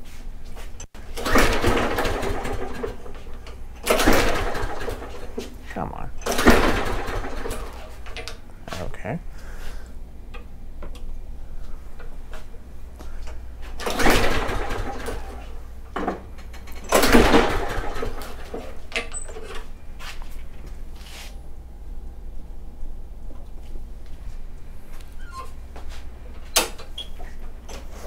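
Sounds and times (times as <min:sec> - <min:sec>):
lawnmower recoil starter pulls: 0:01.0 - 0:05.5, 0:06.2 - 0:08.4, 0:13.7 - 0:19.7.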